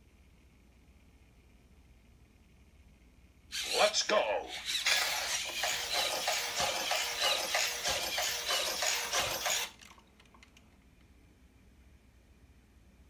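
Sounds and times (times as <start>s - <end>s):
robot servo motors whirring: 3.5s - 9.8s.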